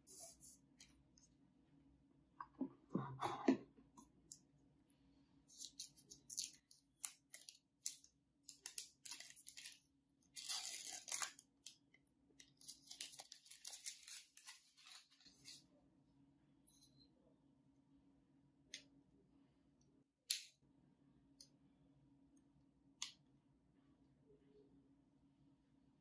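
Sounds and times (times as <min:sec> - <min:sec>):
plastic wrap crinkling and tearing: 0:05.5 - 0:11.8, 0:12.4 - 0:15.6.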